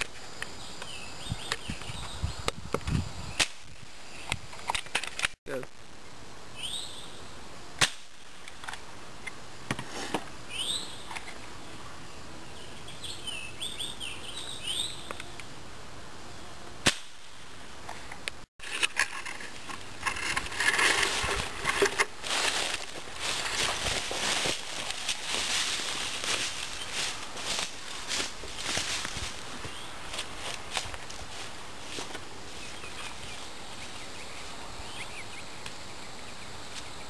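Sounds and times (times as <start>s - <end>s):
birds chirping: 0.0s - 4.7s, 6.5s - 7.4s, 10.3s - 15.6s, 20.8s - 37.0s
footsteps in dry leaves: 18.6s - 34.6s.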